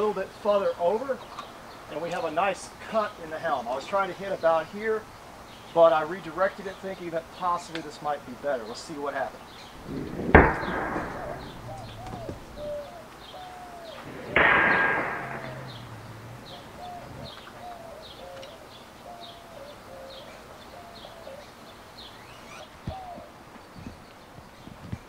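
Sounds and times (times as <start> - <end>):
small birds chirping: 0.0 - 25.0
sword striking metal helmet: 14.4 - 15.6.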